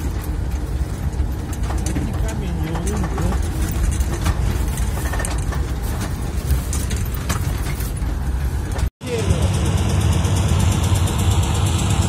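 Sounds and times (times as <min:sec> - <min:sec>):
small rattles and clicks: 0:00.0 - 0:08.9
vehicle engine rumbling: 0:00.0 - 0:12.0.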